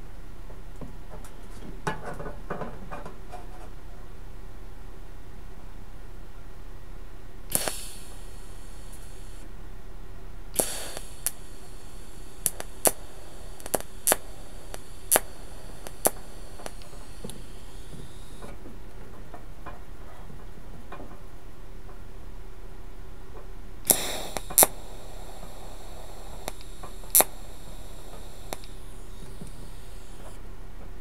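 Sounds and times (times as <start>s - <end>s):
faint steady hum: 0.0s - 31.0s
sharp clicks: 7.5s - 9.4s, 10.6s - 18.6s, 23.8s - 30.4s
welding arc crack: 7.5s - 9.5s, 10.6s - 18.6s, 23.8s - 30.4s
welding arc hissing: 7.5s - 9.5s, 10.5s - 18.6s, 23.8s - 30.4s.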